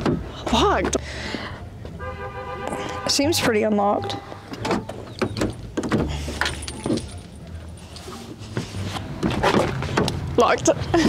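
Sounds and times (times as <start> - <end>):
car door opening: 4.5 - 8.4.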